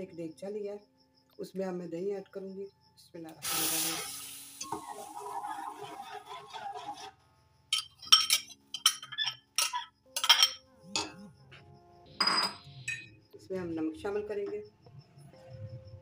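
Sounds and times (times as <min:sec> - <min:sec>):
bowl and ladle clinking: 0:07.7 - 0:11.2, 0:12.2 - 0:13.1.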